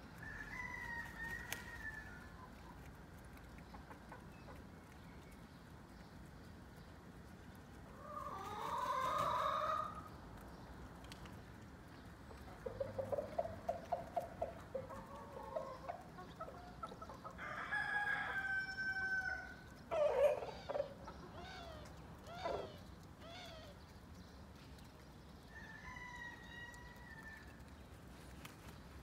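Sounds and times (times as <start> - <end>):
hens clucking and squawking: 7.9 - 10.2, 12.3 - 22.9.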